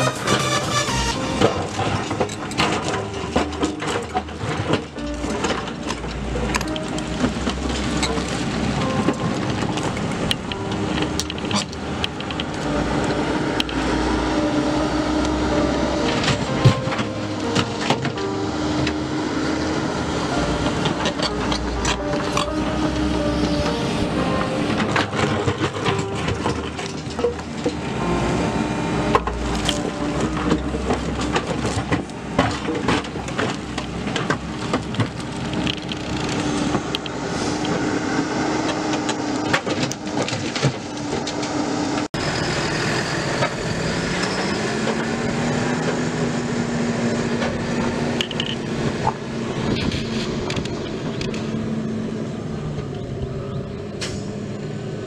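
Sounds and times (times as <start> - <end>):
excavator diesel engine: 0.0 - 55.0
tractor diesel engine rising: 0.0 - 55.0.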